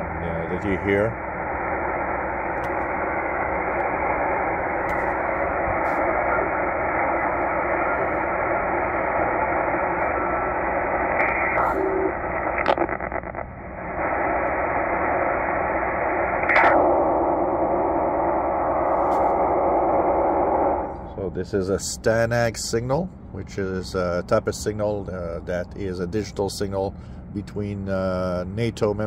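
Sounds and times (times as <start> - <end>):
short radio signal tones: 0.0 - 13.4, 14.0 - 21.2
shortwave radio band noise hiss: 0.0 - 29.0.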